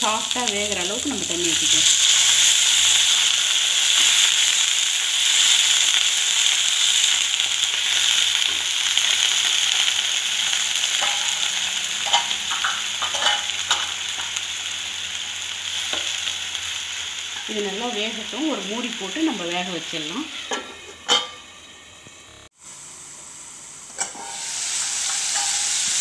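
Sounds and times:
water sizzling in a hot pan: 0.0 - 26.0.

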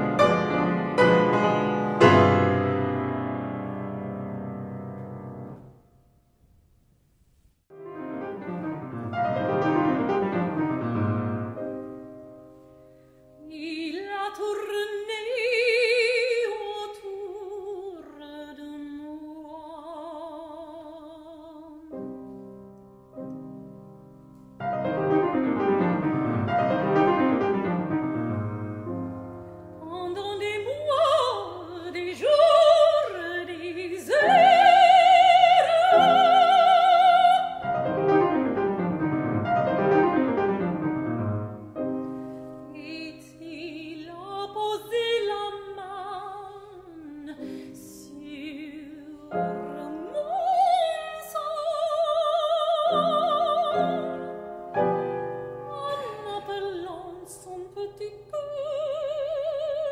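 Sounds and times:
piano accompaniment: 0.0 - 5.9, 7.7 - 14.8, 21.9 - 59.9
woman singing opera: 13.4 - 22.0, 29.8 - 37.7, 42.7 - 54.4, 55.7 - 59.9.

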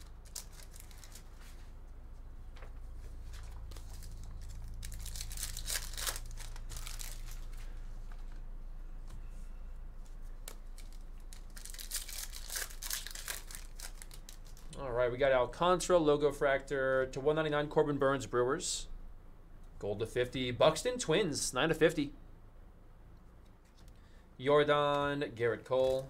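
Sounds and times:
foil wrapper tearing and crinkling: 0.0 - 1.3, 3.7 - 7.6, 10.5 - 14.7.

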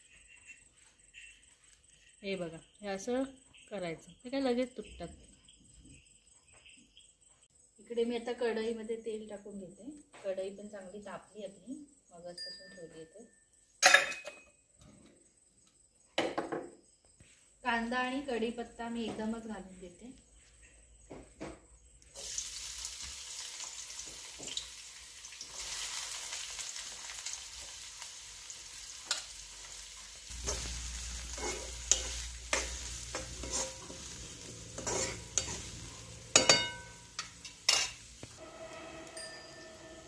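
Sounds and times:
spoon clinking and scraping pan: 13.8 - 14.4, 30.3 - 40.0
onion sizzling in hot oil: 22.1 - 40.0.

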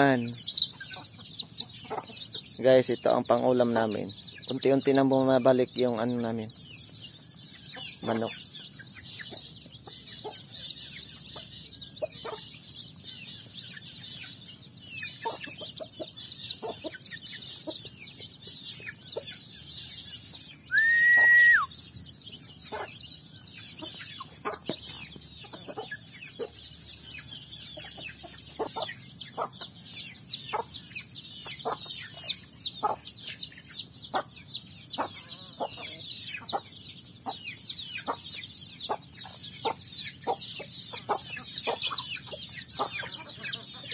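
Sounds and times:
hens clucking: 0.0 - 7.0, 7.6 - 20.4, 22.3 - 34.4, 35.0 - 43.9
chicks peeping: 0.0 - 43.9
loud whistle-like note: 20.7 - 21.7.

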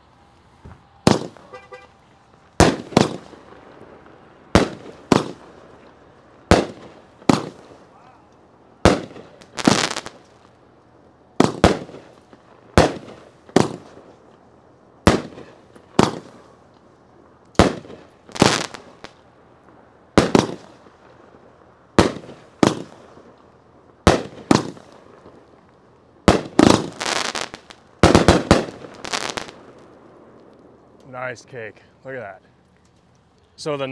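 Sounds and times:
firework launches: 0.5 - 5.8, 6.4 - 8.0, 8.8 - 10.5, 11.4 - 14.2, 15.0 - 16.6, 17.5 - 19.2, 20.1 - 21.2, 21.9 - 25.5, 26.2 - 31.0
firework shells bursting: 0.6 - 10.6, 11.4 - 14.4, 15.0 - 16.8, 17.4 - 21.2, 21.9 - 31.1.

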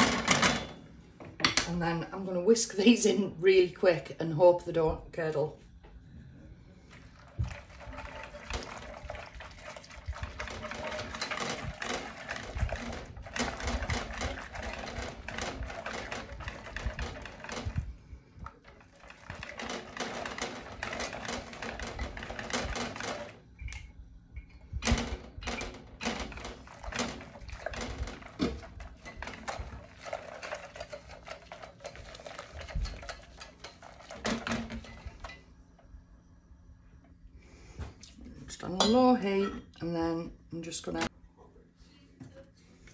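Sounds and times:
whisk rattling in a metal saucepan: 6.9 - 23.8, 24.7 - 35.5.

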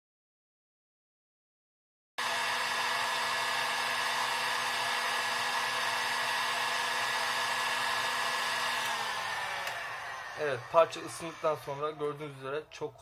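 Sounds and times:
hot air gun blowing: 2.2 - 11.9.

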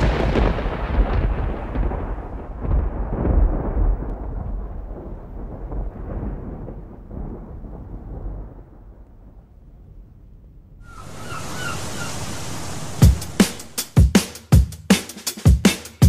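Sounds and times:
wash of hiss: 10.9 - 14.0
deep electronic kick drum: 13.0 - 15.7
drum and bass beat: 13.0 - 16.0.

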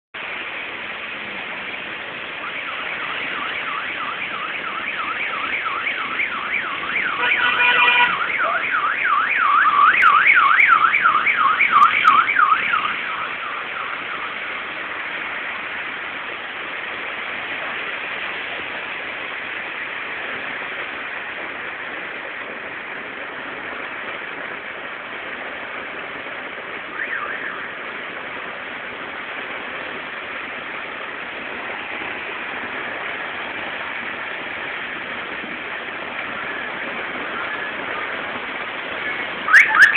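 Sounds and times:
heavy rain and hail: 0.2 - 39.9
car alarm warbling: 2.4 - 14.4, 26.9 - 27.7, 39.0 - 39.9.

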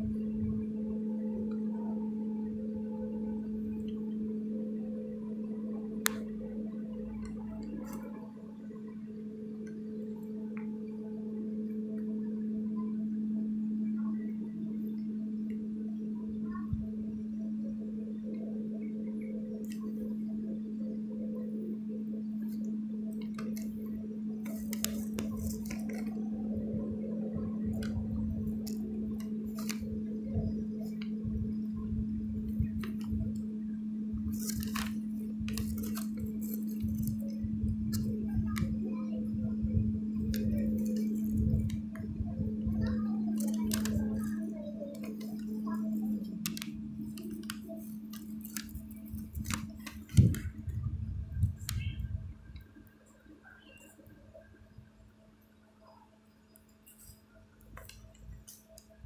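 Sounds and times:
low rumbling: 20.2 - 52.7
faint clicks: 56.5 - 59.0.

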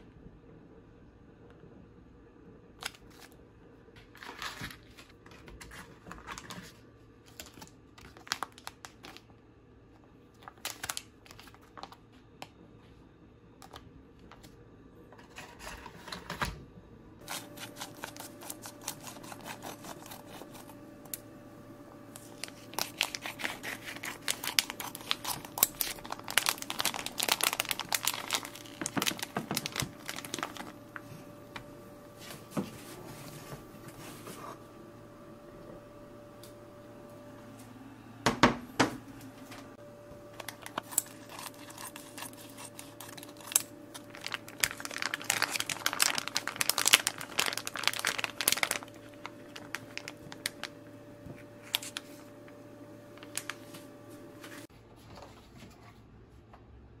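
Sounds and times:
plastic bags crinkling: 5.7 - 9.2, 10.4 - 12.0, 17.2 - 21.2, 22.1 - 31.7, 40.2 - 52.4, 53.1 - 53.7.

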